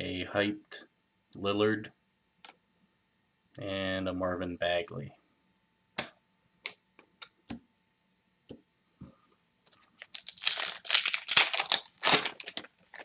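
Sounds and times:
foil wrapper tearing and crinkling: 9.8s - 13.0s.

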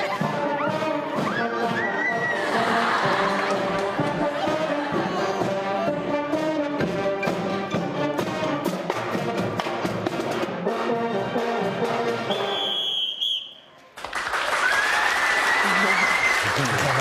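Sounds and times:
marching drums: 0.0s - 12.5s
brass instruments playing: 0.0s - 13.4s.

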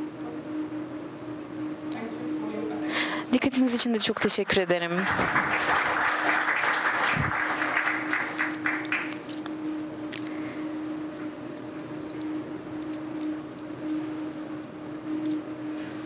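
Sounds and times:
steady low hum: 0.0s - 16.0s
audience applauding: 4.6s - 9.2s.

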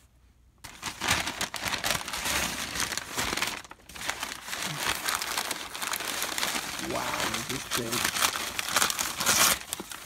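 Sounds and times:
paper crumpling and rustling: 0.6s - 10.0s.

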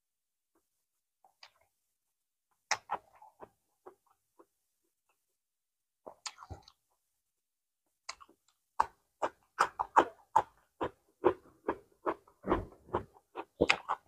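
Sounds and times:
close chewing with wet smacks: 2.6s - 4.5s, 8.0s - 14.0s.

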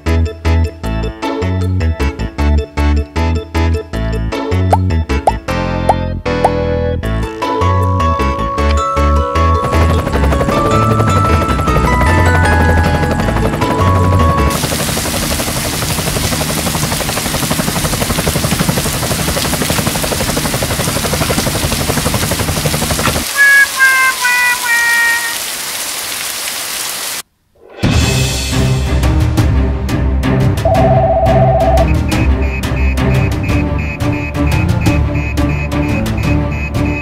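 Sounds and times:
falling cartoon notes: 23.2s - 25.5s, 30.7s - 32.1s
children's background music: 23.3s - 25.4s
airplane engine sound effect: 30.6s - 36.6s.

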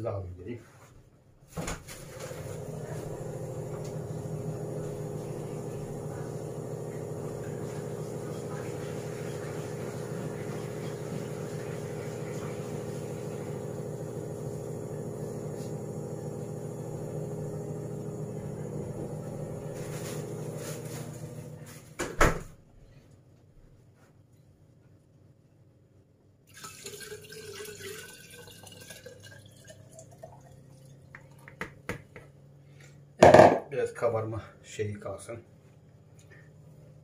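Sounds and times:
small electric motor humming: 2.4s - 21.6s.

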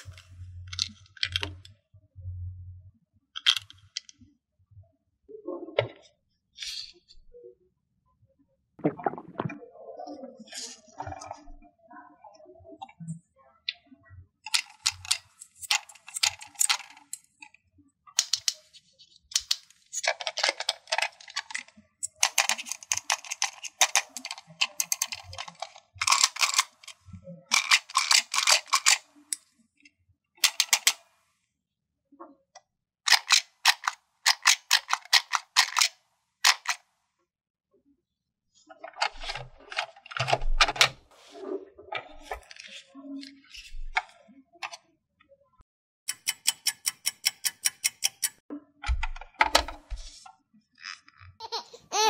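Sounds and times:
plastic toy pieces clicking: 0.0s - 1.7s, 3.4s - 4.1s, 14.5s - 17.6s, 18.2s - 18.7s, 19.3s - 29.5s, 30.4s - 31.0s, 33.1s - 36.8s, 46.1s - 48.4s.

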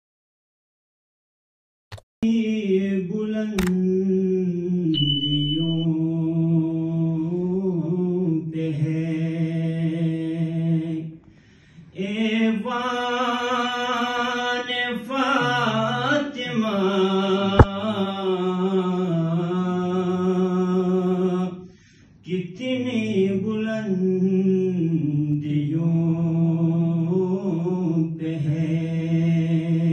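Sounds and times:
sharp click: 3.6s - 3.8s
man chanting into a microphone: 12.0s - 21.6s, 22.2s - 29.9s.

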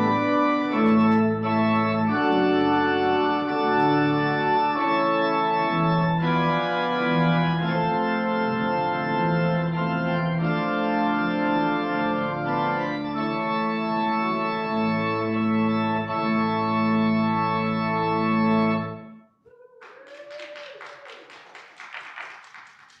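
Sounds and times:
organ playing sustained chords: 0.0s - 19.2s
people clapping: 19.5s - 23.0s.

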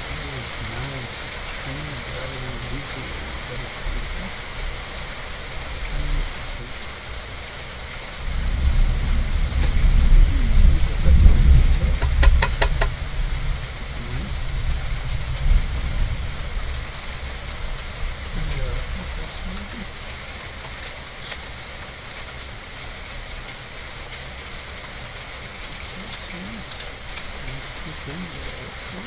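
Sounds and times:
steady rain: 0.0s - 29.0s
thunder rolling: 8.2s - 20.0s.

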